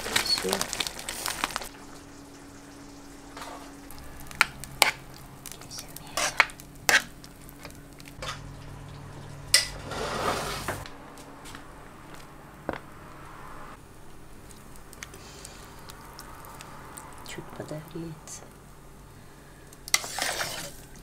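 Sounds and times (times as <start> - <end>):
spoon scraping pan: 4.3 - 8.5, 19.9 - 20.8.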